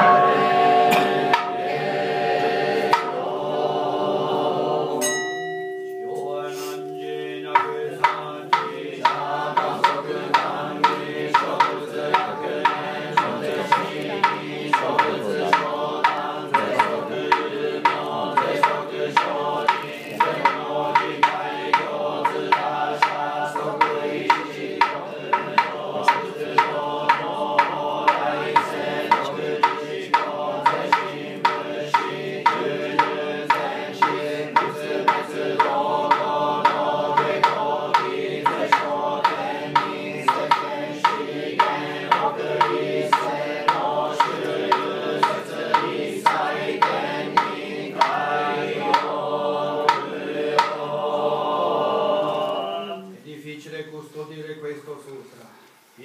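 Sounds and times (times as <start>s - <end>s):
sharp struck percussion beat: 0.0s - 52.1s
group chanting: 0.0s - 53.2s.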